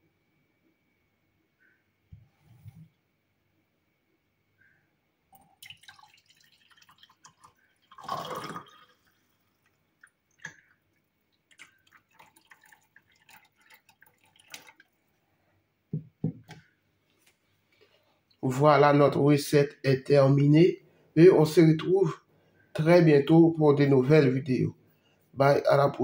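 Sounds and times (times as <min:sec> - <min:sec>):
liquid pouring into mug: 0:05.4 - 0:15.0.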